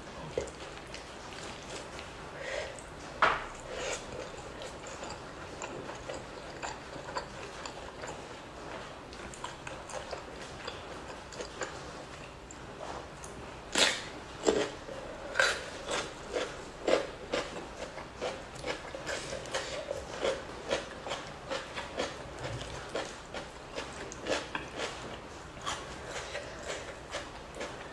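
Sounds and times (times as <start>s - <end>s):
wet chewing and lip smacking: 2.7s - 14.8s.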